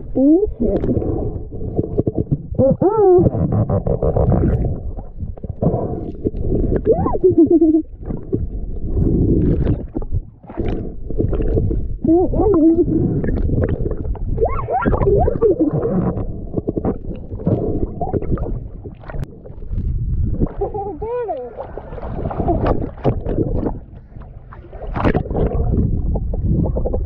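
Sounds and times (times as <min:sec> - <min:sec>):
muffled vocal sounds through snorkel: 0:00.0 - 0:19.3, 0:20.3 - 0:23.8, 0:25.0 - 0:27.0
bubbling crackles: 0:00.0 - 0:23.9, 0:24.9 - 0:27.0
muffled rumbling underwater noise: 0:00.0 - 0:27.0.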